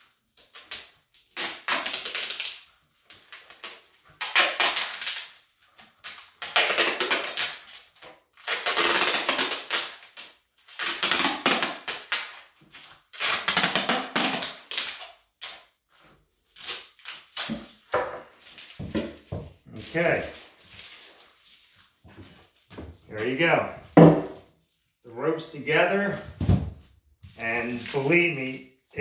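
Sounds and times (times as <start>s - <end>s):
duct tape pulled off roll: 0.4s - 15.7s, 16.5s - 18.9s.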